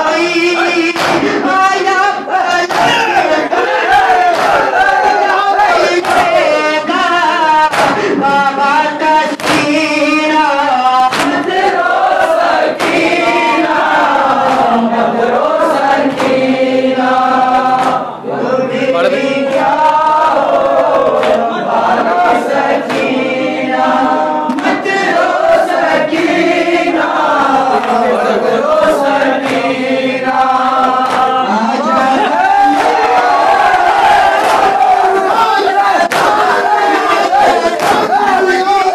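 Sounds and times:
group chanting: 0.0 - 38.9
young men reciting into a microphone: 0.0 - 38.9
hands slapping chests: 0.9 - 1.6, 2.6 - 3.2, 4.2 - 5.0, 5.9 - 6.5, 7.6 - 8.4, 9.3 - 9.9, 11.1 - 11.8, 12.8 - 14.8, 16.0 - 16.5, 17.7 - 18.1, 21.2 - 21.4, 22.8 - 23.2, 24.5 - 26.4, 28.8 - 31.4, 34.4 - 35.0, 36.0 - 36.5, 37.4 - 38.5.

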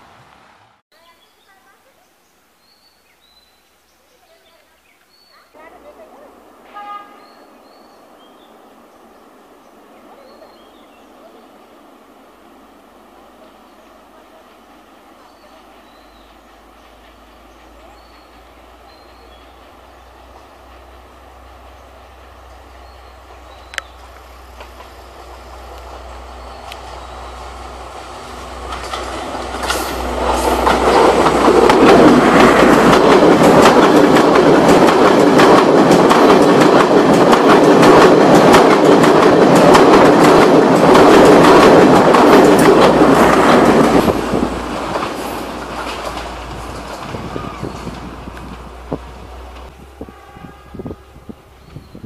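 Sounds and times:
train engine hum: 5.3 - 52.0
train wheels clattering over rail joints: 28.5 - 49.7.

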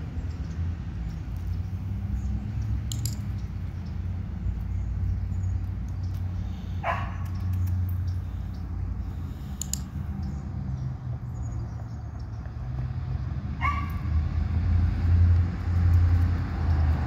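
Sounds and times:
dog barking: 6.8 - 7.2, 13.6 - 14.1.

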